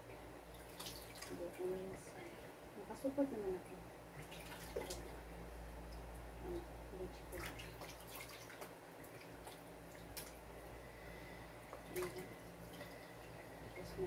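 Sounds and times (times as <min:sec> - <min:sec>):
water dripping and splashing in basin: 0:00.5 - 0:01.6, 0:04.2 - 0:10.5, 0:11.7 - 0:14.0.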